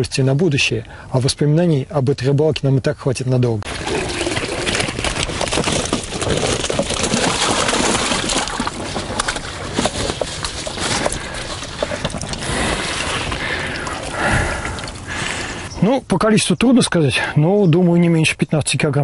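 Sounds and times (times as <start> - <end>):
water splashing into bucket: 3.7 - 15.2.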